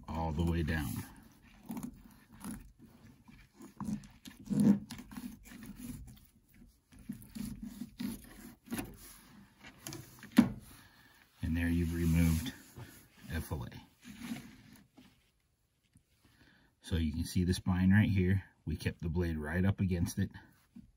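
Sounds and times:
soft handling on cutting board: 0.0s - 16.1s
knife scraping along fish: 0.4s - 10.9s.

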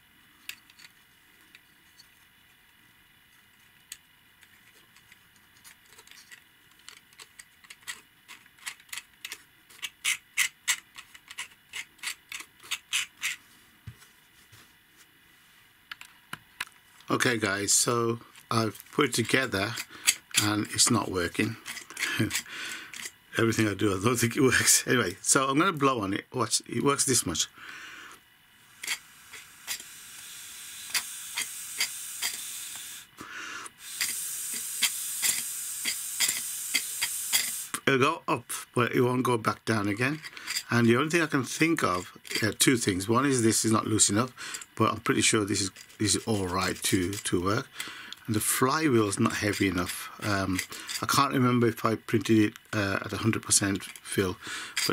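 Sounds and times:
air hissing through tube: 27.5s - 37.8s.

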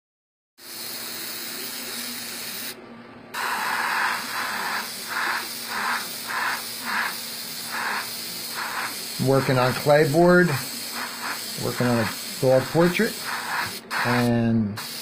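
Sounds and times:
airbrush spraying hiss: 0.6s - 15.0s.

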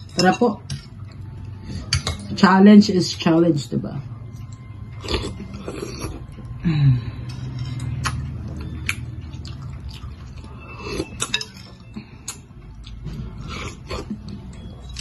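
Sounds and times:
cutlery clinking on bowl: 11.1s - 11.8s.

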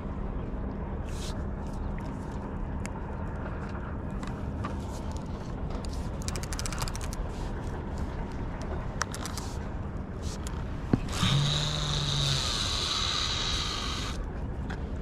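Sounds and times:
low rumble and faint hum: 0.0s - 15.0s
fishing reel clicking: 6.2s - 7.2s, 11.1s - 14.2s.

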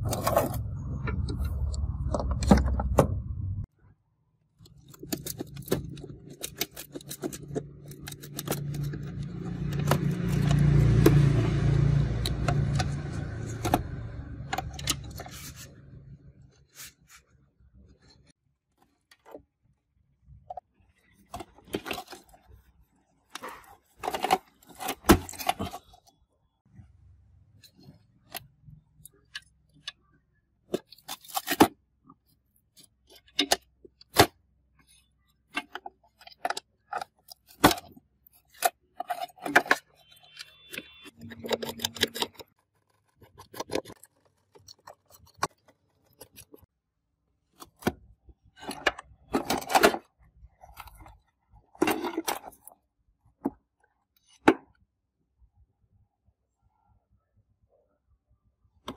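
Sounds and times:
metal and plastic parts clicking: 4.6s - 11.2s, 12.2s - 15.6s, 32.8s - 46.7s, 47.5s - 52.8s.

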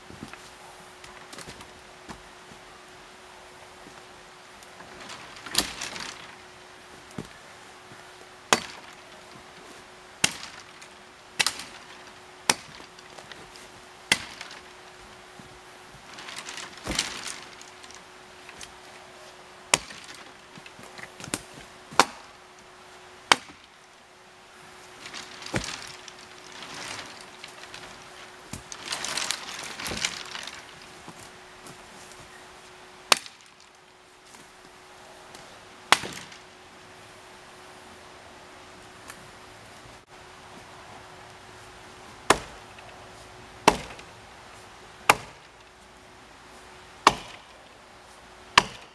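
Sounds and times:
rustling of brush and branches: 0.0s - 48.9s
axe chopping branches: 4.8s - 6.3s, 8.5s - 9.2s, 10.2s - 14.8s, 16.0s - 18.8s, 19.7s - 22.4s, 23.2s - 23.8s, 25.0s - 31.8s, 33.1s - 33.7s, 35.9s - 36.4s, 42.2s - 42.9s, 43.6s - 44.1s, 45.0s - 45.5s, 47.0s - 47.5s, 48.5s - 48.9s.

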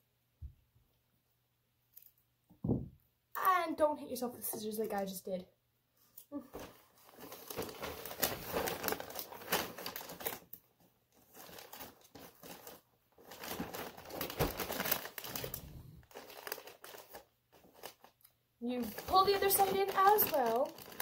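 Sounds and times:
wrapping paper crinkling: 6.5s - 21.0s.

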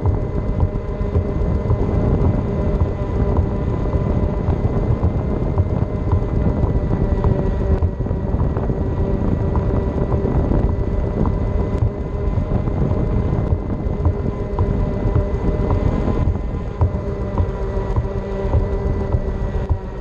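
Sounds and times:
electric motor whine: 0.0s - 20.0s
small ticks: 0.0s - 20.0s.

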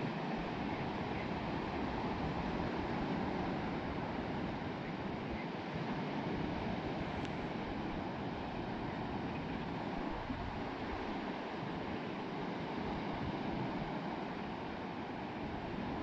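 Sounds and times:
sea waves washing onto beach: 0.0s - 16.0s.

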